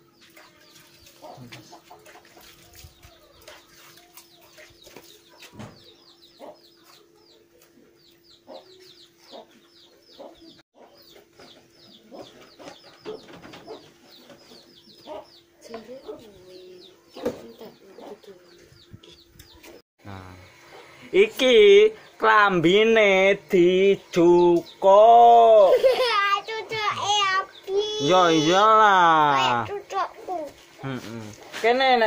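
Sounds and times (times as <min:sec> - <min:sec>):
chickens clucking and peeping: 0:00.0 - 0:32.0.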